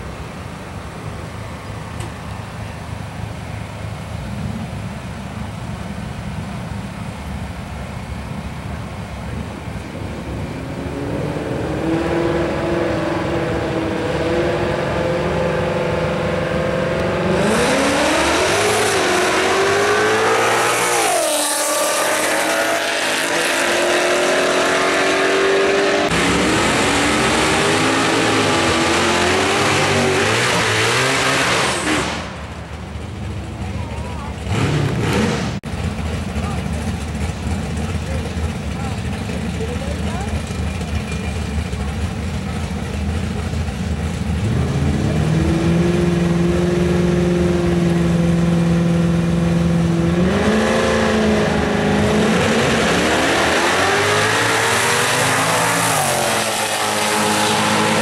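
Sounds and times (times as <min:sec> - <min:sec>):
drag racing engines revving: 0:09.3 - 0:58.0
loud rush: 0:49.6 - 0:58.0.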